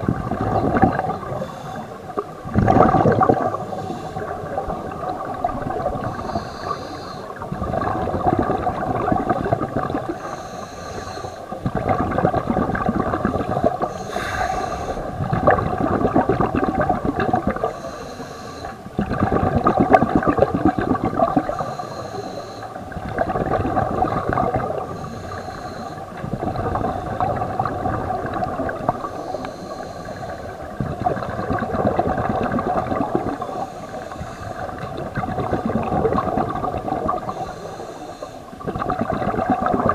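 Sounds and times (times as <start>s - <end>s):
exhaled air bubbling: 0.0s - 39.9s
regulator inhale hiss: 1.2s - 2.3s, 3.5s - 5.3s, 6.0s - 7.5s, 10.0s - 11.6s, 13.7s - 15.2s, 17.6s - 18.9s, 21.4s - 22.9s, 24.7s - 27.5s, 28.8s - 30.8s, 33.3s - 35.0s, 37.2s - 38.6s.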